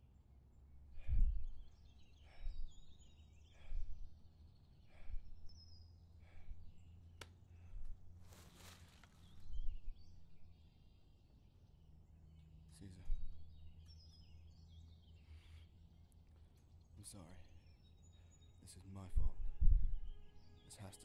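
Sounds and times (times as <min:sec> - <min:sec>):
small birds chirping: 0:00.0 - 0:21.0
man breathing heavily: 0:00.8 - 0:08.7, 0:15.1 - 0:16.6.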